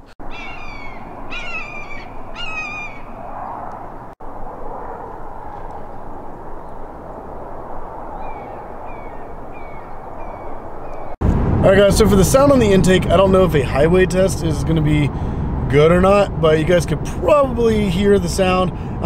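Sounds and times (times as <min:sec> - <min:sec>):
birds calling: 0:00.0 - 0:03.9, 0:08.1 - 0:11.2.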